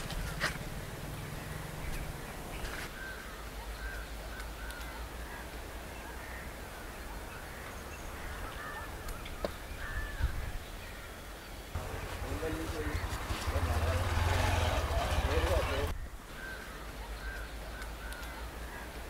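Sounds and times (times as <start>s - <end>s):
crows cawing: 11.8s - 19.0s.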